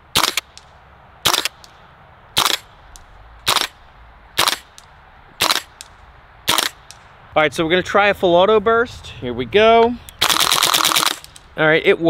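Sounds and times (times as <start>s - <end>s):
airsoft rifle shots: 0.1s - 1.7s, 2.4s - 2.8s, 3.4s - 3.8s, 4.4s - 7.1s, 10.2s - 11.5s.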